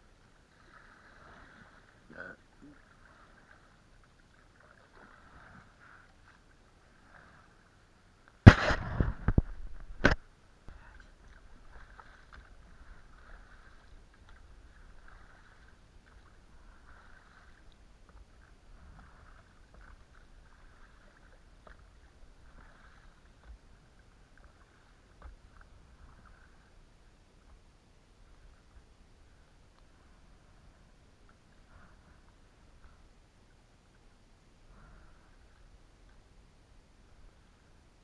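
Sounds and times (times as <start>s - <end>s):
oar strokes: 0.4s - 7.8s, 8.4s - 33.2s
water splashing: 0.4s - 33.2s
sharp knock: 8.4s - 9.4s.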